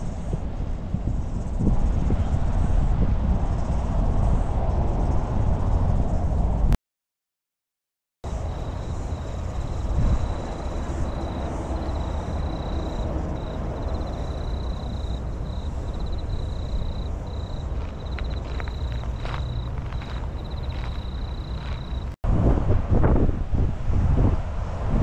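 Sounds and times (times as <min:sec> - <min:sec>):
wind buffeting the microphone: 0:00.0 - 0:06.8, 0:08.3 - 0:25.0
high steady chirping: 0:08.3 - 0:22.2
distant motorway traffic rumble: 0:08.3 - 0:25.0.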